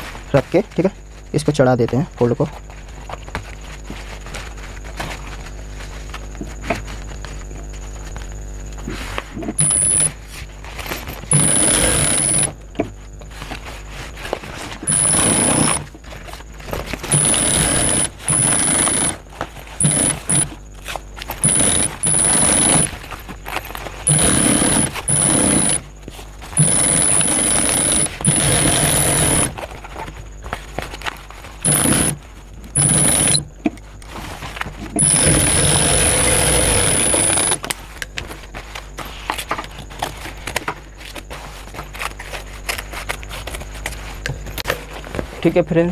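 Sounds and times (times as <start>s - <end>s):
industrial sewing machine whining: 9.6s - 10.2s, 10.8s - 12.6s, 14.8s - 16.0s, 16.6s - 20.6s, 21.2s - 25.9s, 26.5s - 29.6s, 31.6s - 33.5s, 35.0s - 37.7s.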